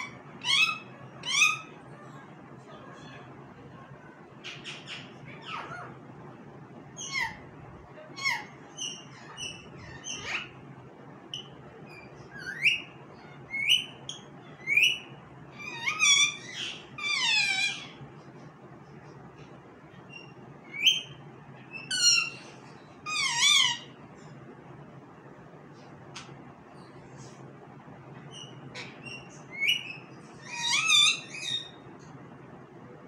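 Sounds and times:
parakeet whistled calls and chirps: 0.0s - 1.8s, 4.4s - 6.0s, 8.2s - 10.6s, 11.3s - 18.0s, 19.9s - 24.0s, 28.3s - 31.9s.

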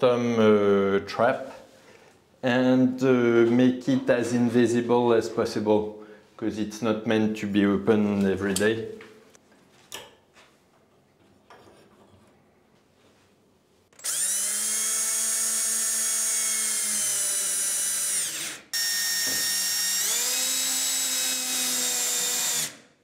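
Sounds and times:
cordless drill motor whining: 14.0s - 22.8s.

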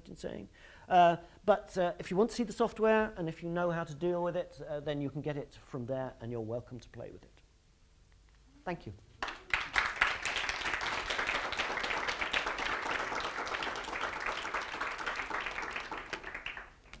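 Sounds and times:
audience applauding: 9.2s - 17.0s.

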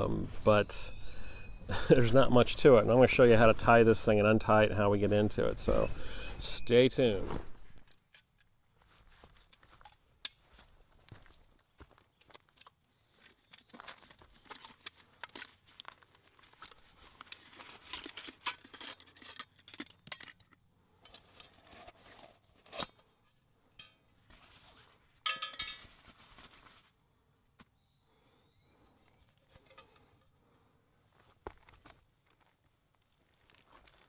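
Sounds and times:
metal clinks: 25.3s - 25.9s.

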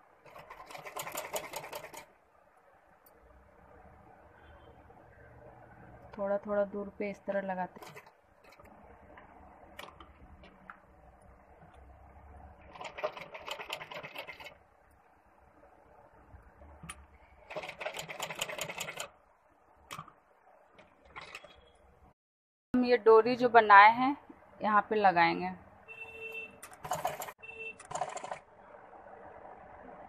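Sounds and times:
sewing machine stitching: 0.2s - 2.1s, 12.6s - 14.6s, 17.4s - 19.2s, 26.7s - 28.4s.

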